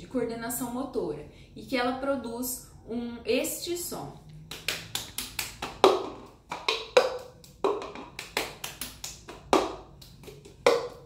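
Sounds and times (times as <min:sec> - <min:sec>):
hand claps: 0:04.5 - 0:11.0
plastic cup knocking on countertop: 0:05.8 - 0:08.2.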